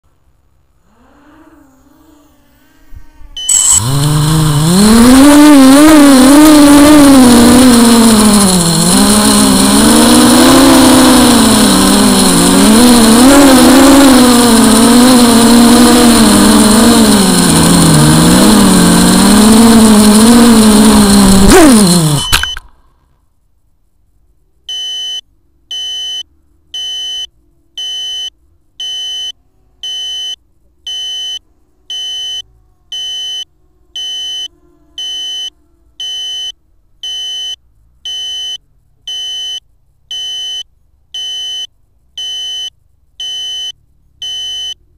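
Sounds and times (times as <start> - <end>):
model aircraft electric motors: 2.8 - 22.6, 31.2 - 36.3
electronic beeps: 3.4 - 22.8, 33.0 - 40.6, 41.2 - 44.8.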